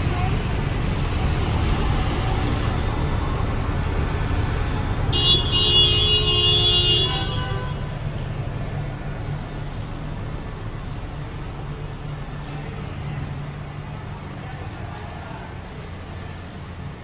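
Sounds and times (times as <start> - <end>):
street traffic rumble: 0.0 - 17.0
vehicle horn: 5.1 - 7.9.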